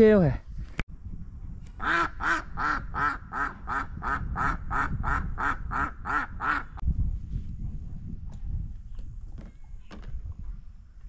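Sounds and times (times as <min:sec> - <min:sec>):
duck quacking: 0:01.8 - 0:06.8.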